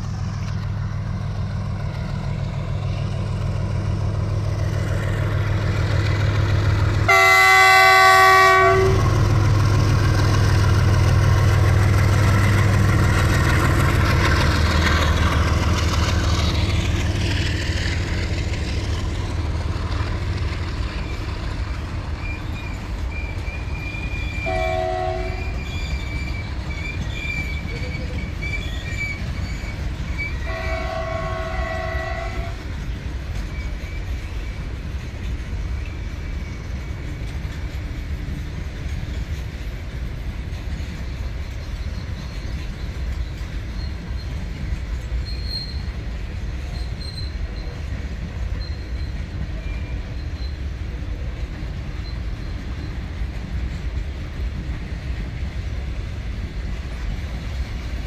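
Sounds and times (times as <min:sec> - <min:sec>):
locomotive engine drone: 0:00.0 - 0:58.0
train wagons rolling: 0:00.0 - 0:58.0
train horn blast: 0:07.1 - 0:09.3, 0:24.4 - 0:25.6, 0:30.4 - 0:32.6.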